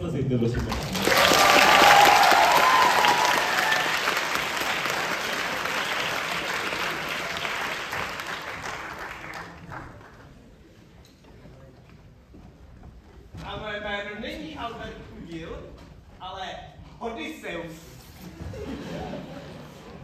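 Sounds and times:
audience applauding: 0:00.6 - 0:10.4.

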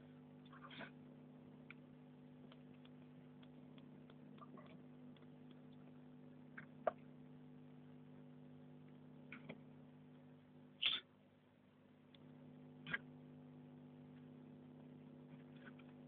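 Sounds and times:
low electrical hum: 0:00.0 - 0:16.0
faint ticks: 0:02.4 - 0:06.0.

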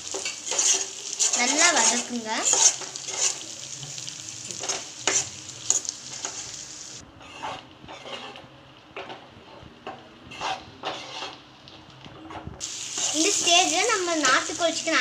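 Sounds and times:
food sizzling in a frying pan: 0:00.0 - 0:15.0
metal spatula scraping a pan: 0:00.1 - 0:06.6, 0:07.2 - 0:08.4, 0:10.3 - 0:11.4.

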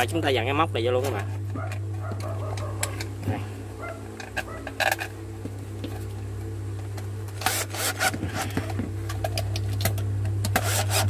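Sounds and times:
drill driver grinding: 0:07.4 - 0:08.8, 0:10.4 - 0:11.0.

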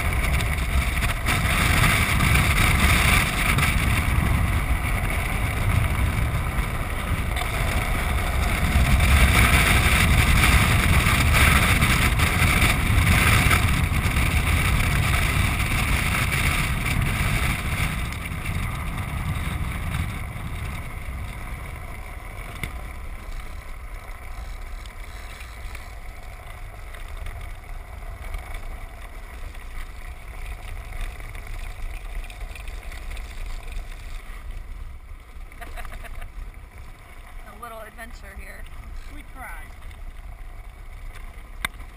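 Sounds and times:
wind rushing on microphone: 0:00.0 - 0:23.9
wheels rumbling: 0:00.0 - 0:41.9.

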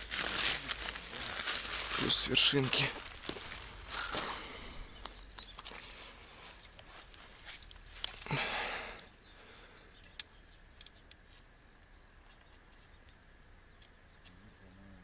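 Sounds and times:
fishing rod handling rustle: 0:00.0 - 0:05.8, 0:06.4 - 0:08.5, 0:10.0 - 0:11.5
sharp clicks of rod sections: 0:10.0 - 0:11.4.

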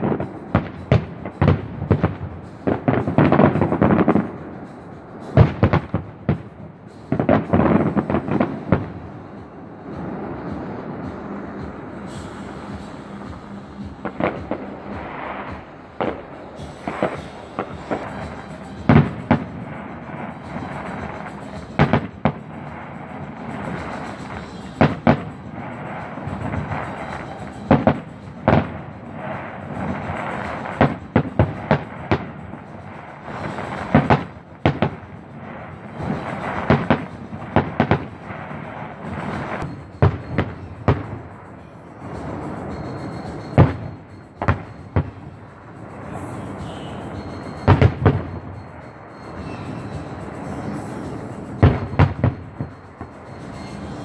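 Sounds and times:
continuous rumble: 0:00.0 - 0:54.0
firework shells bursting: 0:00.0 - 0:54.0.

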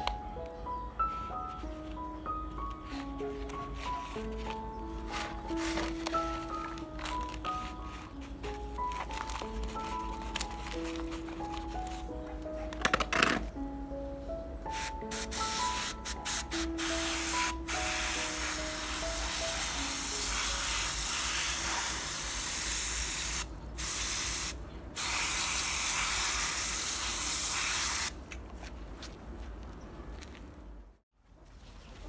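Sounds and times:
garden sprayer hissing: 0:14.7 - 0:28.1.

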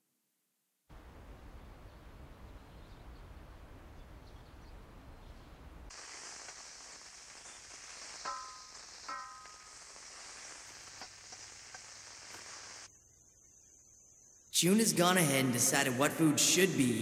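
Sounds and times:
food sizzling in a pan: 0:05.9 - 0:12.9.

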